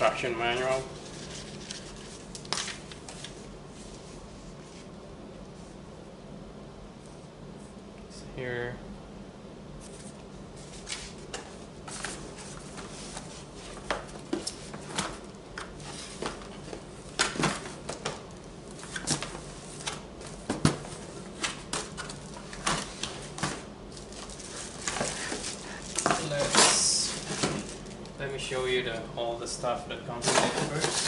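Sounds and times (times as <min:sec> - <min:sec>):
cardboard and plastic rustling: 0:00.0 - 0:04.0, 0:09.8 - 0:28.2, 0:30.2 - 0:31.0.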